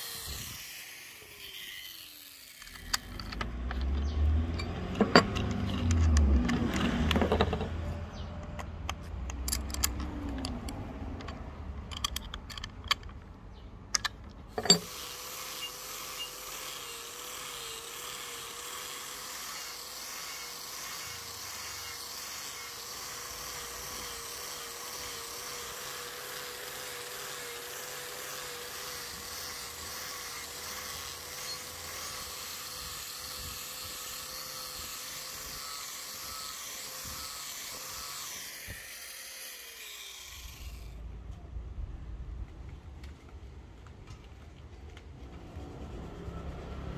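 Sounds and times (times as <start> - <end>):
angle grinder whine: 0.0 - 8.0, 14.5 - 41.0
sharp clicks and knocks: 2.6 - 13.3, 13.9 - 14.9.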